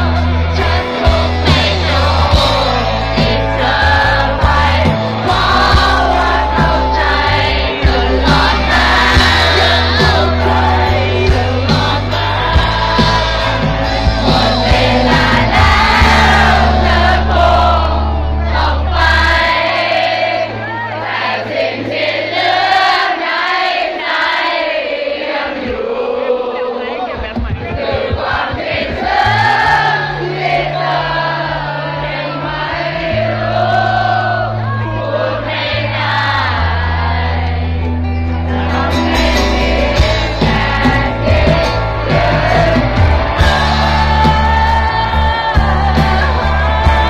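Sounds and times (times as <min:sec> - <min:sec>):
person singing: 0:00.0 - 0:18.0
heavy bass line: 0:00.0 - 0:19.8, 0:35.7 - 0:47.0
crowd singing along: 0:00.0 - 0:47.0
live concert music: 0:00.0 - 0:47.0
drum hits: 0:27.2 - 0:29.7, 0:39.1 - 0:47.0.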